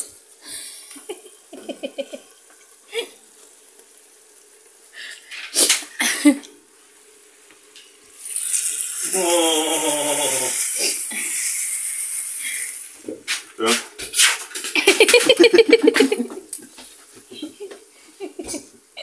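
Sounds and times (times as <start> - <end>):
breathy bursts of noise: 0.0 - 1.0, 2.8 - 7.4, 8.0 - 13.0
mushrooms sizzling in a frying pan: 0.0 - 19.0.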